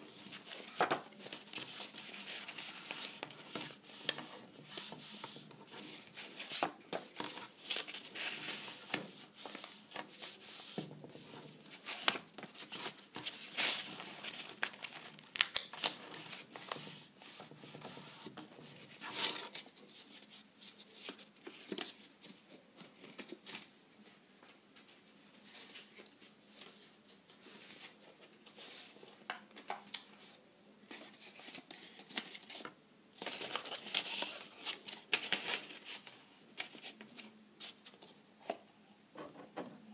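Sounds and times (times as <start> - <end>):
cardboard rustling and crinkling: 0.0 - 23.7.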